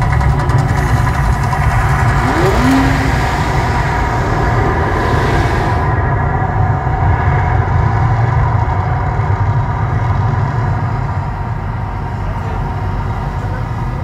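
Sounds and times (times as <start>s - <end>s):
deep steady rumble: 0.0s - 14.0s
sustained tones: 1.4s - 6.1s.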